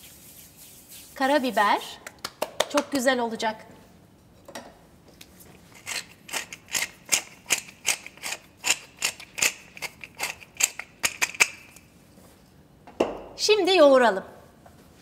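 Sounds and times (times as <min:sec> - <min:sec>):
pepper mill grinding and clicking: 0:05.7 - 0:11.8.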